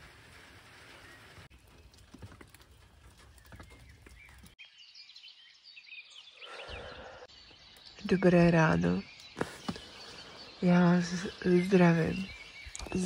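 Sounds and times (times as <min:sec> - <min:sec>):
light rain pattering: 0:00.0 - 0:04.6
birds chirping: 0:00.7 - 0:13.0.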